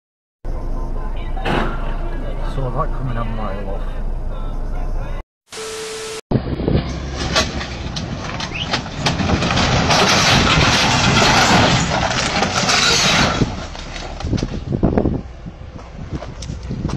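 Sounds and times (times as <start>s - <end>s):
bulldozer diesel engine working: 0.5s - 16.9s
metal knocks and clanks: 6.8s - 14.8s.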